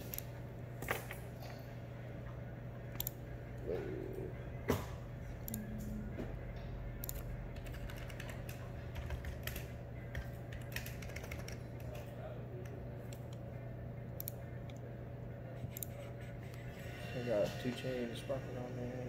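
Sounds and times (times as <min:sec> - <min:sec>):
steady low hum: 0:00.0 - 0:19.0
keyboard typing: 0:07.0 - 0:12.1.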